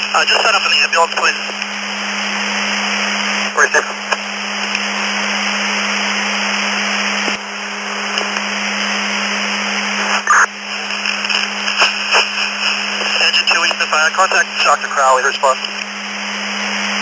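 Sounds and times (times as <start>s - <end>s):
radio scanner static hiss: 0.0s - 17.0s
steady hum: 0.0s - 17.0s
short crackle: 10.6s - 13.9s.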